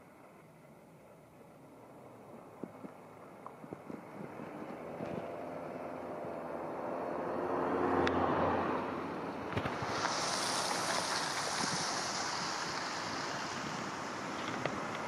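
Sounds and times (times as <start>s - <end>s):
diesel truck engine drone: 0.0s - 15.0s
tyres hissing on wet pavement: 0.0s - 15.0s.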